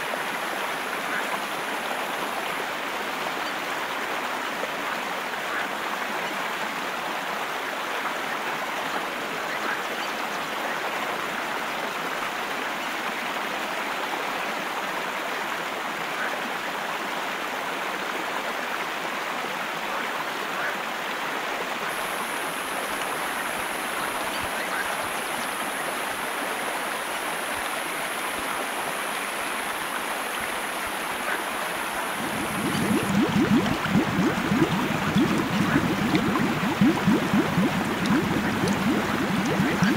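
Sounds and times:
stream water rushing: 0.0s - 39.9s.

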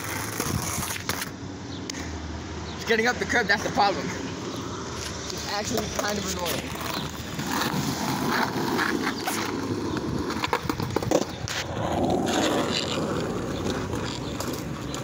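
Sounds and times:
skateboard wheels rolling on asphalt: 0.0s - 15.0s
skateboard clacks: 5.6s - 15.0s.

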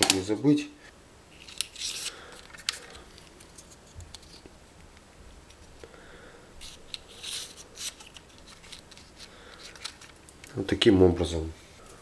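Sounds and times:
light rustling of tubing: 6.6s - 10.6s.

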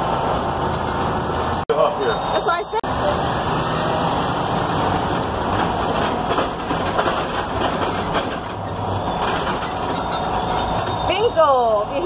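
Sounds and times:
truck engine and road rumble: 0.0s - 12.0s
clicks and rattles in cab: 5.1s - 11.1s.

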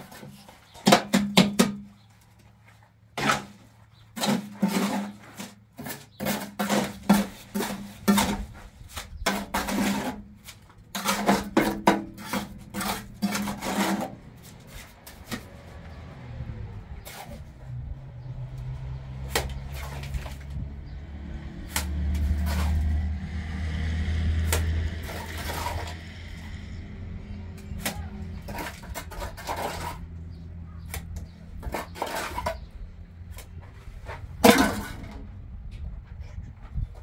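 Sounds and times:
hand tools knocking and scraping: 0.0s - 2.4s, 3.2s - 16.0s, 21.6s - 35.3s.

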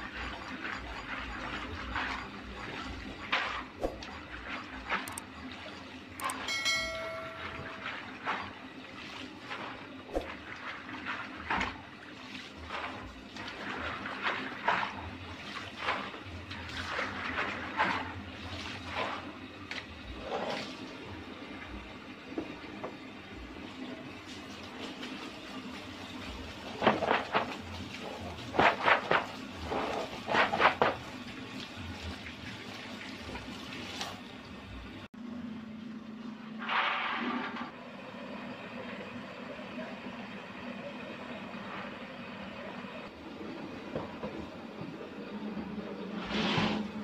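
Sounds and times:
water pouring from hose: 8.1s - 21.1s, 23.8s - 34.5s, 36.6s - 37.6s.

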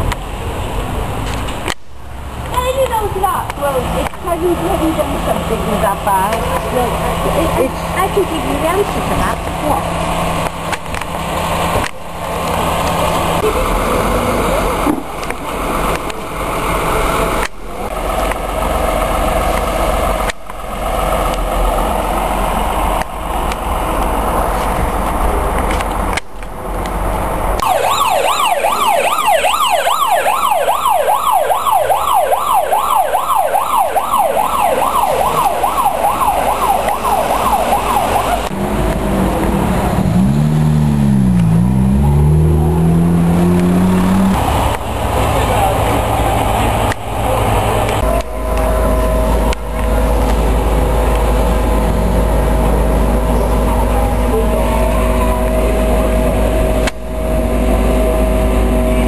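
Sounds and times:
vehicle engines and traffic: 0.0s - 59.0s
siren yelping: 27.6s - 38.5s.

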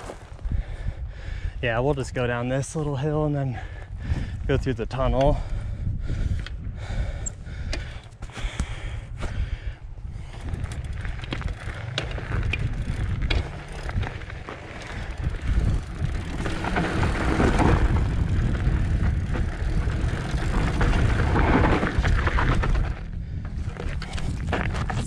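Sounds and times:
bike tyres crunching gravel: 0.0s - 0.5s, 10.1s - 25.0s
wind rumble on microphone: 0.0s - 25.0s.

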